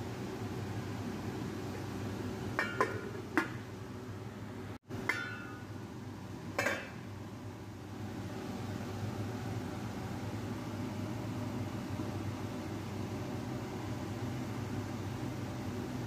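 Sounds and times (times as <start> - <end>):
pot lid clinking on frying pan: 2.6 - 3.6, 5.0 - 5.7, 6.6 - 7.0.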